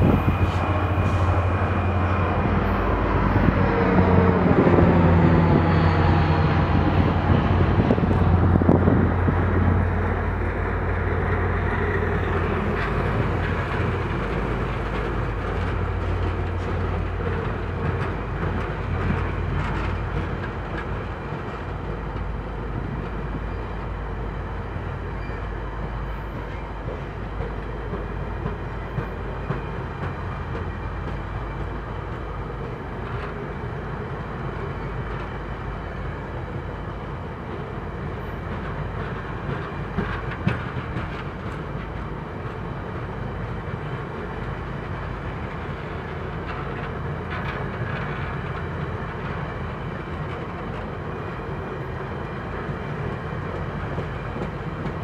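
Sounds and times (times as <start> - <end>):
light clicks of train wheels: 0.0 - 55.0
train wheels rumbling on rails: 0.0 - 55.0.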